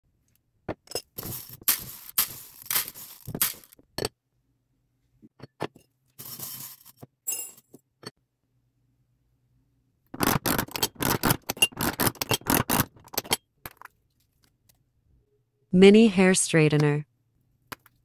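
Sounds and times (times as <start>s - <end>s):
plastic beads rattling in glass bowl: 1.2s - 3.8s.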